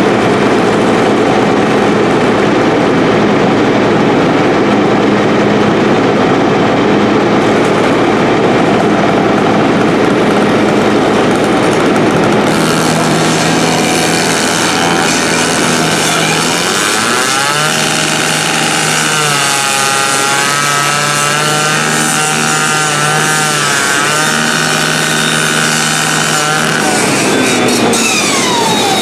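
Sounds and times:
rescue saw running: 0.0s - 29.0s
saw cutting sheet metal: 7.4s - 29.0s.

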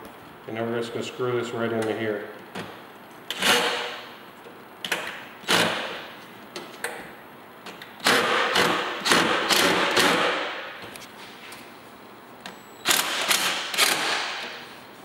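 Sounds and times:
impact driver bursts: 5.5s - 6.0s, 8.0s - 10.7s, 12.8s - 14.6s.

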